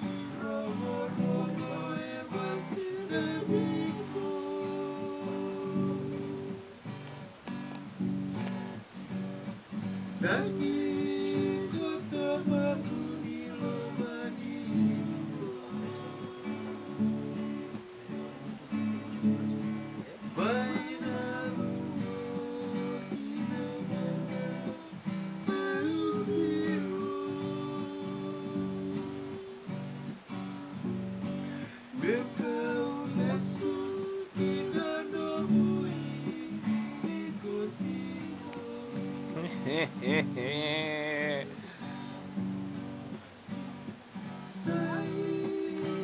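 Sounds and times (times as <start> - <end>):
man singing: 0.0 - 6.8, 10.2 - 29.8, 31.6 - 42.2, 44.2 - 46.0
acoustic guitar strummed: 0.0 - 46.0.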